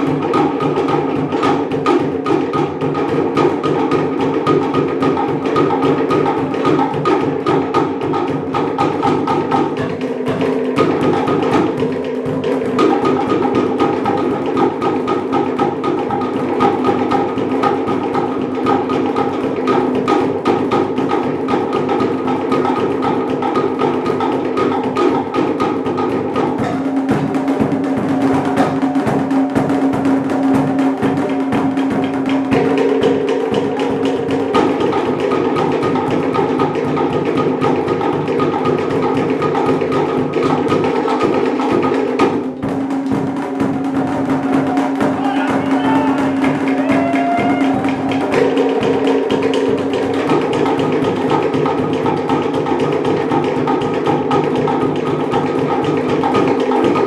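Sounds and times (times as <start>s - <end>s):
wooden slit drums struck with sticks: 24.2s - 36.0s, 38.0s - 54.0s.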